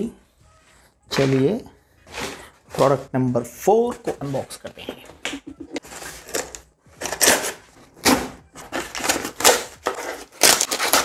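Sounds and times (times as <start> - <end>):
cardboard rustling: 5.8 - 11.0
knife slitting packing tape: 6.2 - 11.0.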